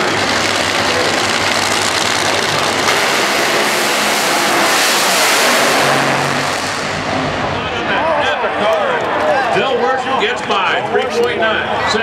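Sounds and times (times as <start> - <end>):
drag racing engines idling loud: 0.0 - 12.0.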